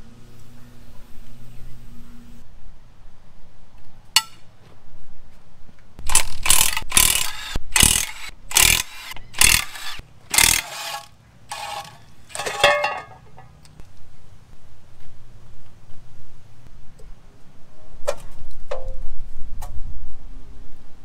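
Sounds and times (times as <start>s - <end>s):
wrench ratcheting: 6.0s - 12.4s.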